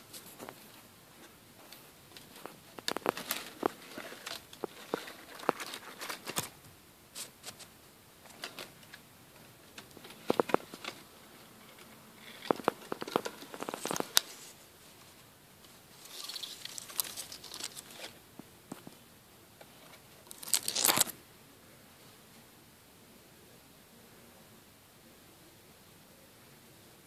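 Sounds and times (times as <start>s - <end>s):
dry leaves rustling and crackling: 15.9s - 18.2s.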